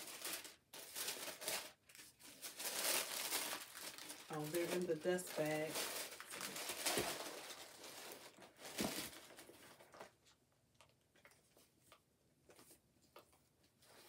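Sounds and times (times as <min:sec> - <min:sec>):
fabric bag rustling: 0:00.0 - 0:09.9
wrapping paper crinkling: 0:00.0 - 0:10.2.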